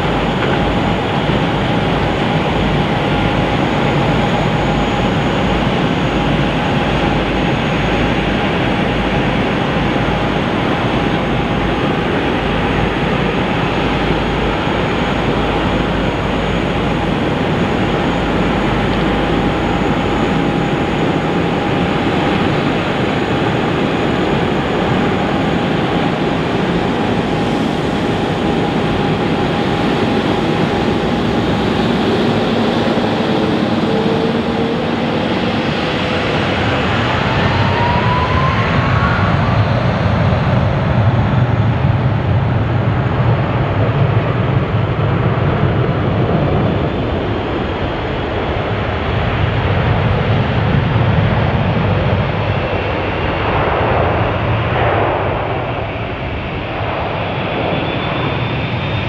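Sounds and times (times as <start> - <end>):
jet engines running: 0.0 - 59.0.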